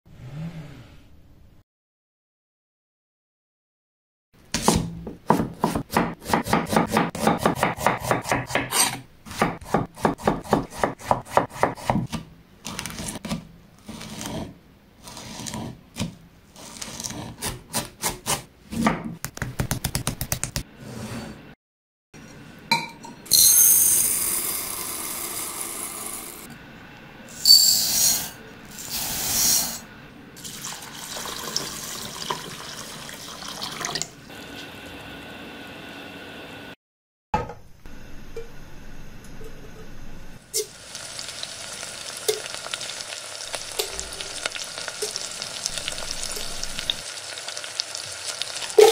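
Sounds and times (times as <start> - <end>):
knife chopping on wooden board: 4.6 - 14.5, 17.0 - 20.7.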